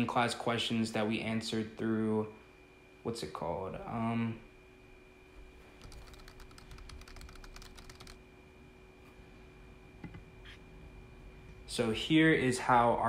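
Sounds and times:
typing on laptop keyboard: 5.8s - 8.2s.

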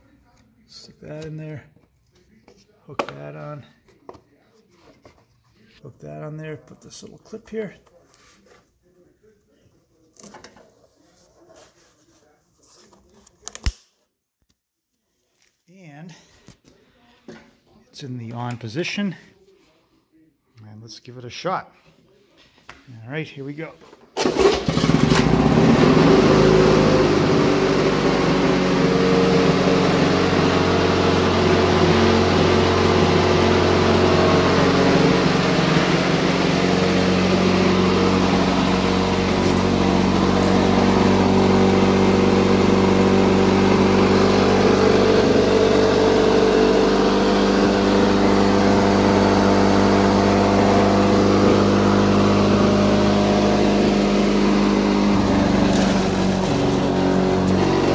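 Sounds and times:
mower engine starting and running: 24.2s - 57.9s.

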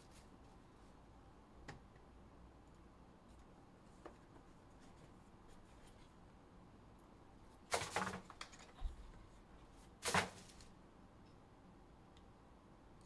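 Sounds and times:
plastic packaging rustling: 10.0s - 10.7s.

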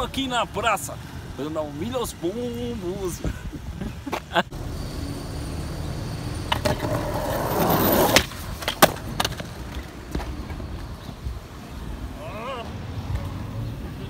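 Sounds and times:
skateboard wheels rolling on pavement: 0.0s - 14.0s
skateboard clacks: 6.4s - 10.7s.

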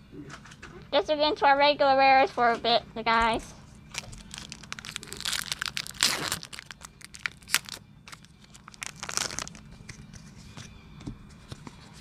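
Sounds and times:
foil wrapper tearing and crinkling: 3.9s - 10.2s.

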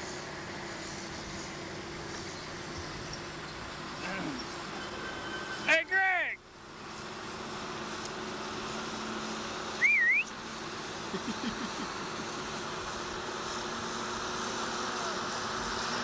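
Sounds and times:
truck engine running: 0.0s - 16.0s
short whistled note: 9.8s - 10.3s.

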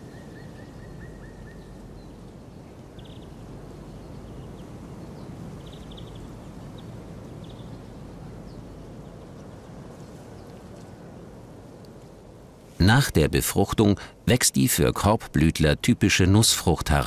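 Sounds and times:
open-air background rush: 0.0s - 17.0s.

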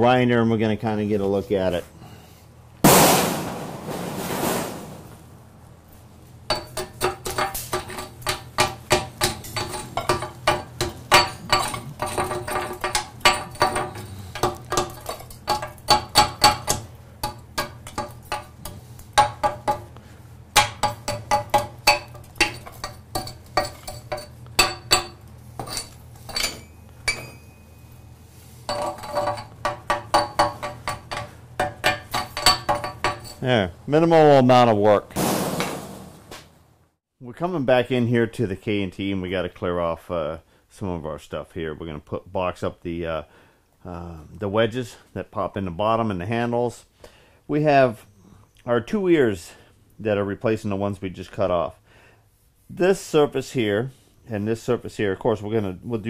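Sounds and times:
hammer striking steel: 6.5s - 19.9s, 20.6s - 27.6s.

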